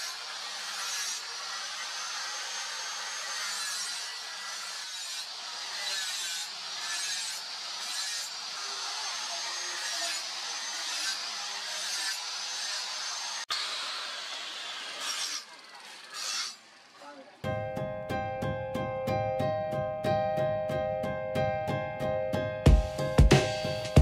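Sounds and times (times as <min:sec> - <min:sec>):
angle grinder grinding steel: 0:00.0 - 0:17.4.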